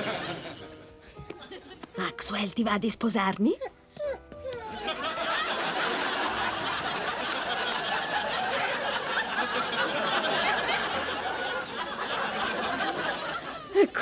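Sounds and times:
audience laughing: 0.0s - 1.8s, 4.8s - 13.9s.

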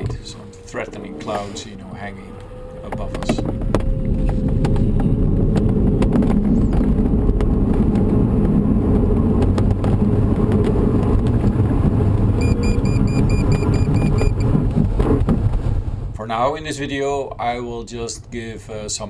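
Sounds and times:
plane engine at take-off power: 0.0s - 14.8s
glider rolling on runway: 0.0s - 16.1s
wind: 0.0s - 19.0s
rapid instrument beeping: 12.4s - 14.5s.

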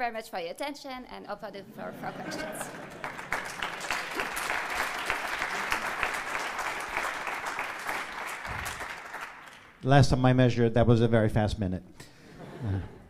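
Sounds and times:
audience applauding: 2.3s - 9.8s.

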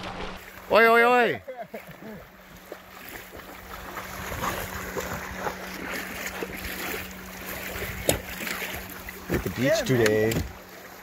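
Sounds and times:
small waves lapping: 0.0s - 11.0s
steady low hum: 0.0s - 11.0s.

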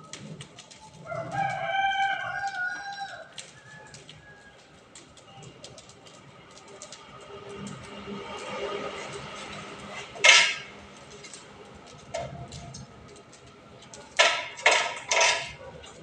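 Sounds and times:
burning straw crackling: 0.0s - 16.0s
rooster crowing: 1.0s - 4.8s.

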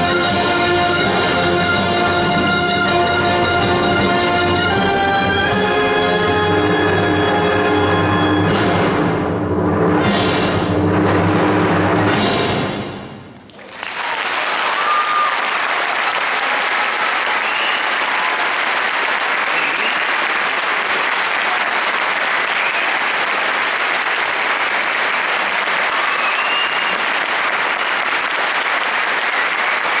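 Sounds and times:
audience applauding: 13.4s - 30.0s.

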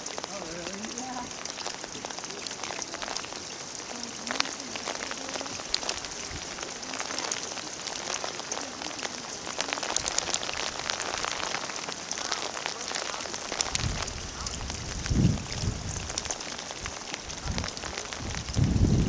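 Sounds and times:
small pops and drips: 0.0s - 19.0s
water running and splashing: 0.0s - 19.0s.

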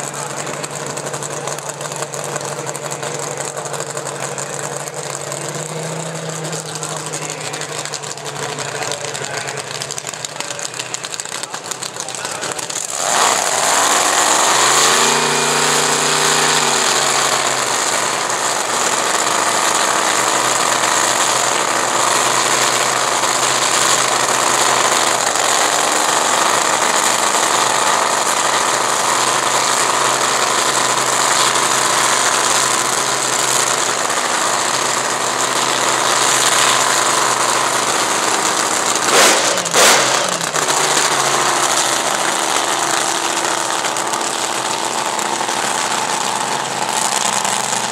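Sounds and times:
dragster engine idling: 0.0s - 47.9s
sharp engine bangs: 31.2s - 47.9s.

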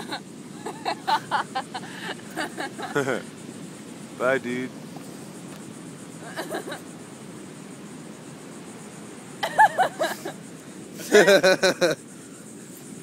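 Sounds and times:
people laughing: 0.0s - 3.3s, 6.2s - 6.8s, 9.4s - 10.4s, 11.0s - 12.0s
background hiss: 0.0s - 13.0s.

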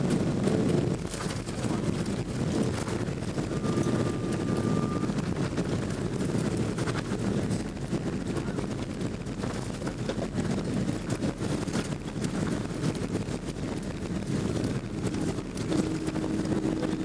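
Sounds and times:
airplane cabin rumble: 0.0s - 17.0s
steady humming tone: 14.3s - 17.0s.

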